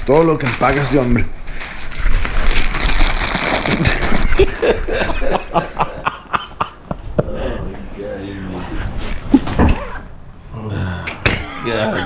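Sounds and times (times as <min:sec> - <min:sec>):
men laughing and snickering: 0:03.7 - 0:07.7.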